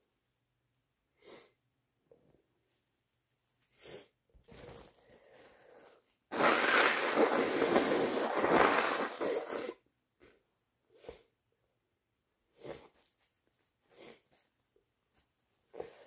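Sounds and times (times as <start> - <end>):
short sniffs: 1.2 - 1.6, 3.7 - 4.2, 12.5 - 13.1, 13.8 - 14.5
faint breathing: 5.0 - 6.1
person blowing nose: 6.3 - 9.8.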